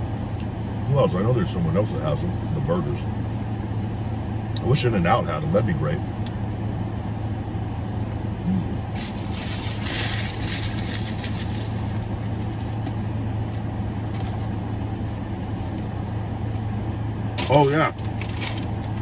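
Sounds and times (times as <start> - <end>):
car engine hum inside cabin: 0.0 - 19.0
paper wrapper rustling: 9.0 - 13.1.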